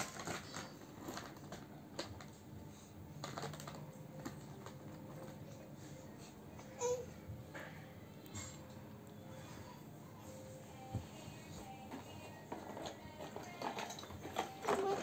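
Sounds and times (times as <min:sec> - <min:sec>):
plastic toy cars clicking: 0:00.0 - 0:02.4, 0:03.2 - 0:05.4, 0:11.8 - 0:15.0.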